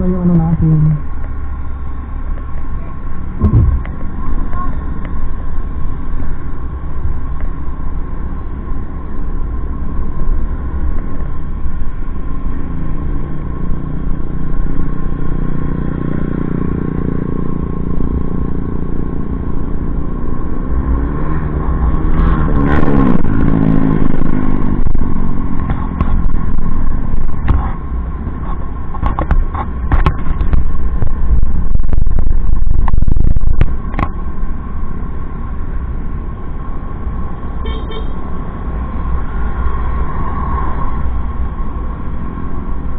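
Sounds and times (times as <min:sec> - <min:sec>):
motorcycle engine and road noise: 0:00.0 - 0:42.9
wind rumbling on microphone: 0:02.0 - 0:08.6, 0:16.4 - 0:35.9
sharp knocks and clatter: 0:28.9 - 0:30.7.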